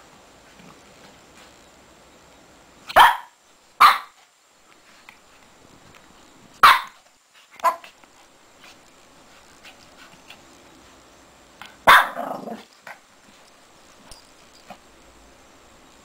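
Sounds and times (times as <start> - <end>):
puppy barking: 2.9 - 4.2, 6.6 - 7.0, 7.6 - 8.0, 11.8 - 12.6.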